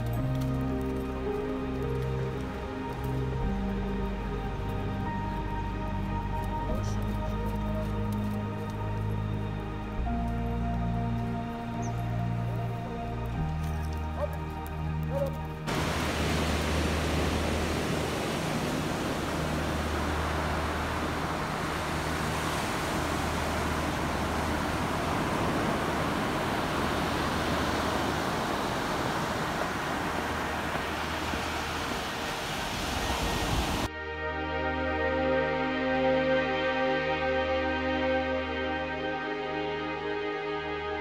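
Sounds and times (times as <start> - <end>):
faint low drone: 0.0 - 28.2
ocean surf breaking: 15.7 - 33.9.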